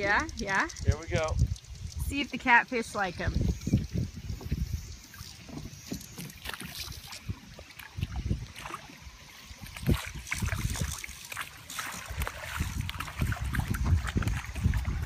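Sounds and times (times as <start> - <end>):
wind buffeting microphone: 0.0 - 15.0
fish splashing at surface: 5.1 - 15.0
net splashing in water: 6.2 - 15.0.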